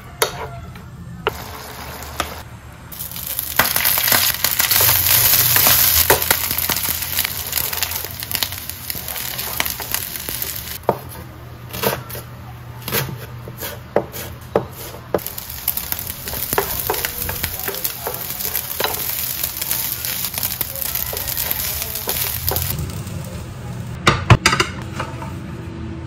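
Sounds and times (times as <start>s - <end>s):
rice sizzling in a frying pan: 1.3s - 10.8s, 15.2s - 24.0s
wooden spoon scraping a pan: 3.6s - 22.8s
knife chopping on cutting board: 12.9s - 15.0s.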